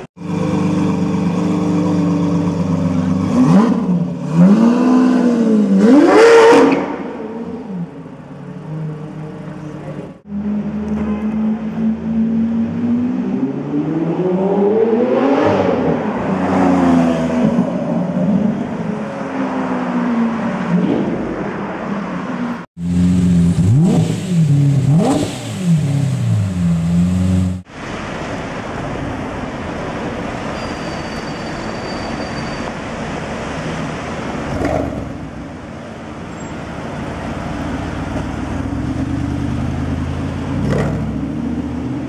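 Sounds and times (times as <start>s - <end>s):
street traffic noise: 0.0s - 42.0s
car engine revving: 22.7s - 27.7s.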